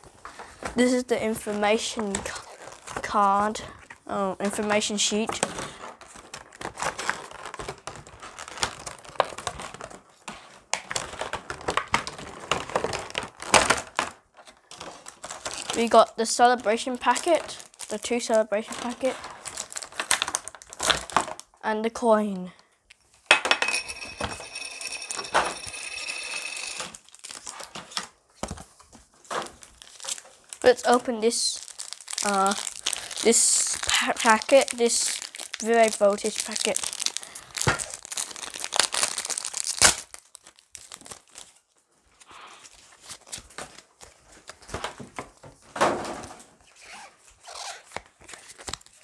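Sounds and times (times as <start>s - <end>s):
plastic packaging clicks: 10.7s - 15.8s, 17.0s - 21.5s, 29.3s - 41.6s, 47.9s - 49.0s
coin clattering on a tabletop: 23.5s - 26.9s.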